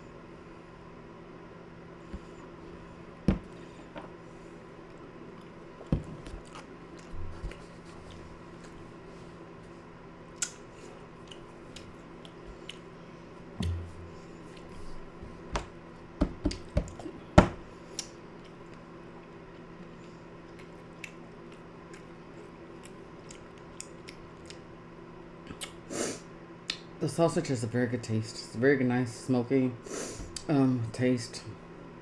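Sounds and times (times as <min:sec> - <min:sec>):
steady low hum: 0:00.0 - 0:32.0
person chewing: 0:04.8 - 0:09.4, 0:10.3 - 0:13.2, 0:17.9 - 0:24.7
soft mouth clicks: 0:10.4 - 0:10.6.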